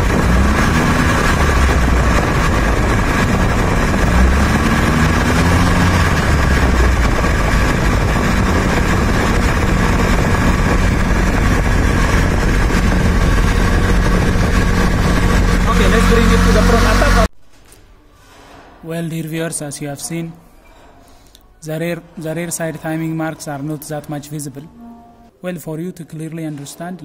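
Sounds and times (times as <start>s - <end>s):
car engine idling: 0.0s - 17.3s.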